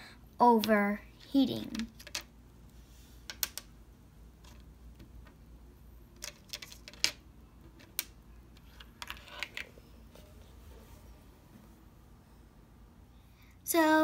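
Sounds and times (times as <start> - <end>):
small metal parts clicking on table: 1.7 - 2.3.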